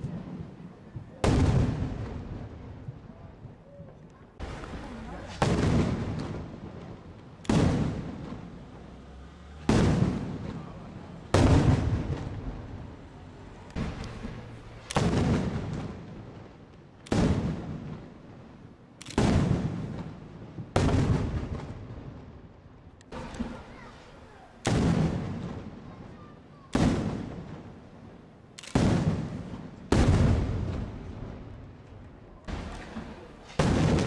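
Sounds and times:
firework shells bursting: 0:13.6 - 0:16.1, 0:18.9 - 0:21.6.

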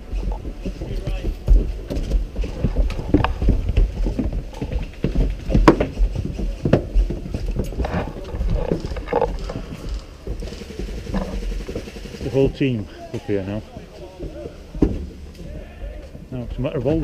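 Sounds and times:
gear and rifle handling knocks: 0:00.2 - 0:11.9
low rumble: 0:06.9 - 0:12.9.

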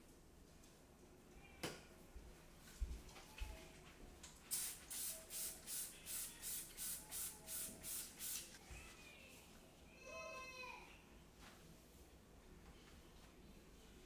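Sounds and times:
spray bottle squirting: 0:04.5 - 0:08.6.

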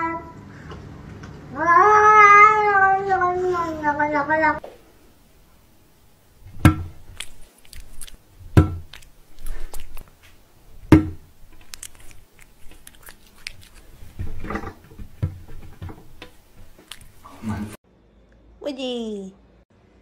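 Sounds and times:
cats chewing treats: 0:07.0 - 0:10.2, 0:10.8 - 0:17.8.

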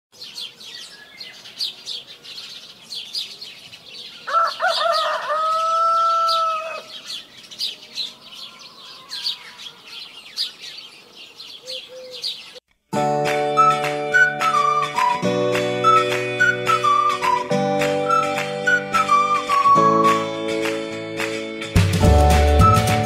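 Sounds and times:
small birds chirping: 0:00.1 - 0:12.8
rooster crowing: 0:04.2 - 0:07.0, 0:08.0 - 0:10.0.

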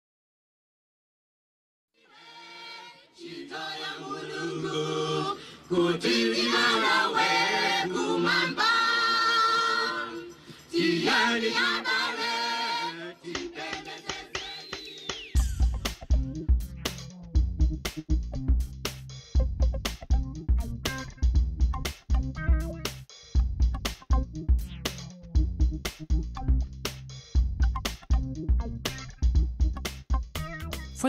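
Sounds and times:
unaccompanied choir singing: 0:02.0 - 0:15.1
drum-backed music: 0:13.4 - 0:31.0.

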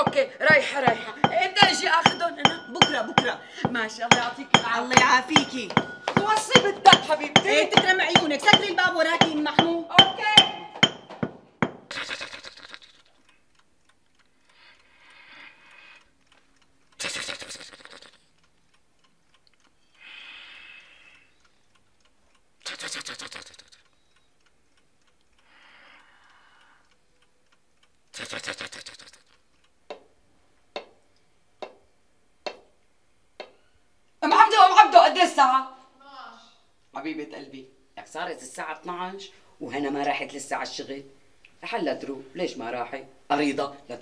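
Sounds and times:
alarm clock bell ringing: 0:00.0 - 0:11.3
sharp knocks: 0:00.0 - 0:11.9, 0:32.4 - 0:32.7.

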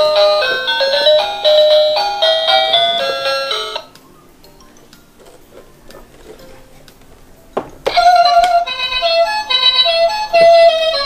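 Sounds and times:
ice cream van chime tune: 0:00.0 - 0:05.2, 0:08.0 - 0:11.0.

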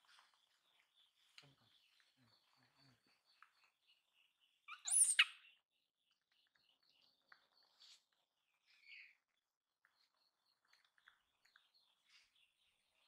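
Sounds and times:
monkey squealing: 0:04.7 - 0:05.3
soft monkey calls: 0:04.7 - 0:05.4.

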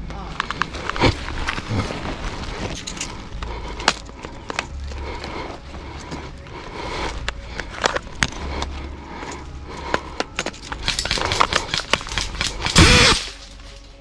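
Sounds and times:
rustling in dry pine needles: 0:00.2 - 0:03.4.

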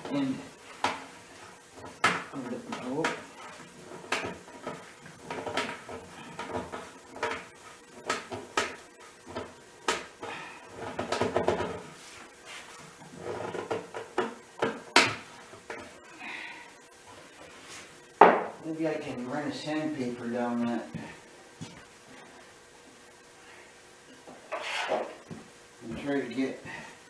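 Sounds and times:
wooden dowel knocking and scraping: 0:01.8 - 0:10.2, 0:24.5 - 0:26.1.

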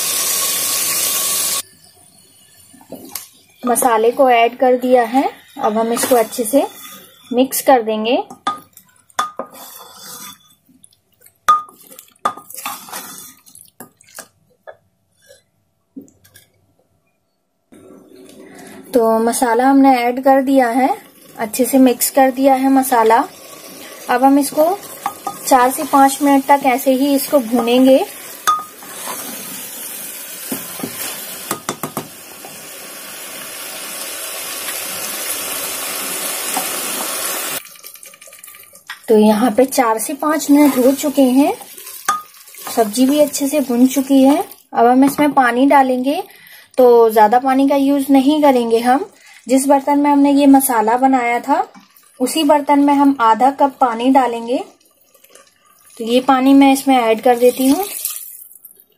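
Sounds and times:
vegetables sizzling in oil: 0:00.0 - 0:07.6, 0:19.3 - 0:37.6, 0:38.8 - 0:44.5
spatula scraping pot: 0:05.1 - 0:07.6, 0:09.4 - 0:10.6, 0:12.5 - 0:13.5, 0:17.8 - 0:29.6
wooden spatula scraping a pot: 0:05.5 - 0:07.4, 0:09.4 - 0:10.6, 0:12.5 - 0:13.5, 0:28.8 - 0:29.6.

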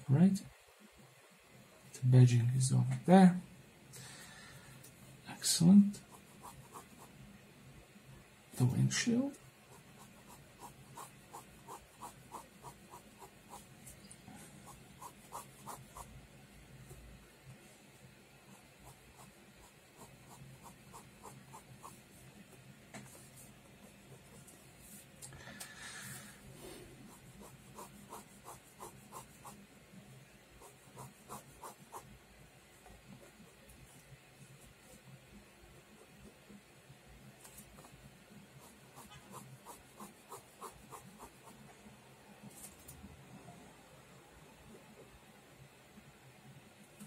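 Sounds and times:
pen scratching on paper: 0:06.0 - 0:07.2, 0:09.7 - 0:14.0, 0:14.6 - 0:16.1, 0:18.5 - 0:22.1, 0:27.0 - 0:29.6, 0:30.6 - 0:32.1, 0:38.6 - 0:41.6.

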